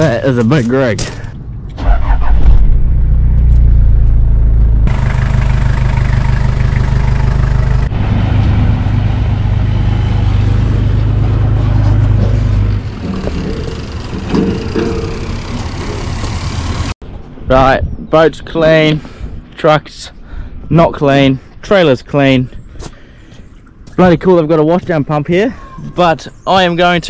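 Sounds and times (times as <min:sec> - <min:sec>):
vehicle engine running: 0:02.8 - 0:17.0.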